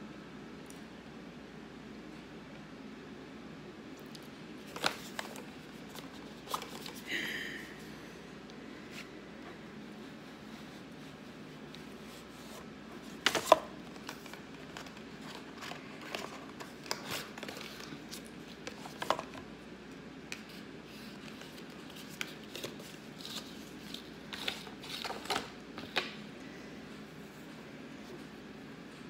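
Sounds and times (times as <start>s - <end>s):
cardboard packaging clicks and rustles: 4.0s - 7.1s, 12.4s - 19.5s, 20.3s - 26.2s.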